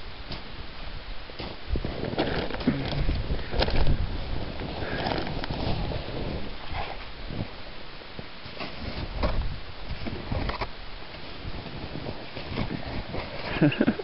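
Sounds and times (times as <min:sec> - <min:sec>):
packed snow crunching and scraping: 0:01.3 - 0:07.6, 0:08.4 - 0:14.0
snow clothing rustling: 0:01.4 - 0:07.6, 0:11.1 - 0:14.0.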